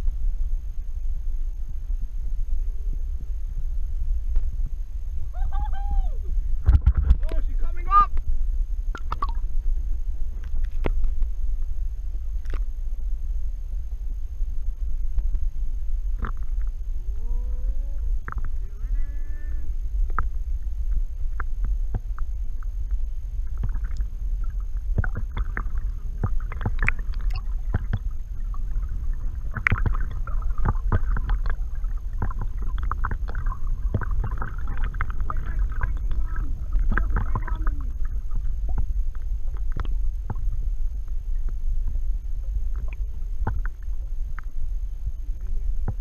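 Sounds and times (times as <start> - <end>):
whale song underwater: 0.0 - 6.7, 11.7 - 46.0
low water rumble: 0.0 - 46.0
underwater clicks: 6.6 - 7.4, 8.9 - 9.6, 10.3 - 11.4, 12.4 - 12.7, 16.1 - 16.8, 18.2 - 18.6, 20.0 - 44.6, 45.4 - 46.0.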